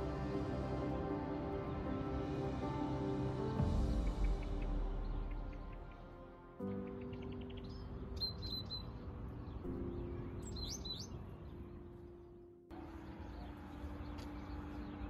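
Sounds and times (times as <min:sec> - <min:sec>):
soft music with held notes: 0:00.0 - 0:15.0
small birds chirping: 0:03.9 - 0:15.0.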